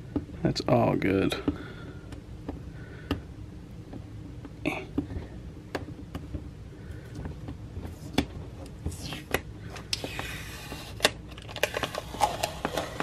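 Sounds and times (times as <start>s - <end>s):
fingers peeling vinyl: 7.2s - 13.0s.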